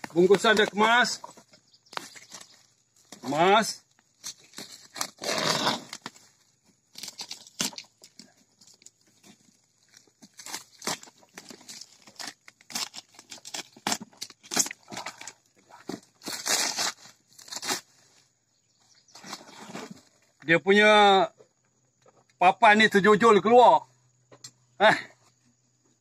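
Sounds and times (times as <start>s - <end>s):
plastic wrapping tearing: 10.2s - 15.4s, 16.2s - 17.9s.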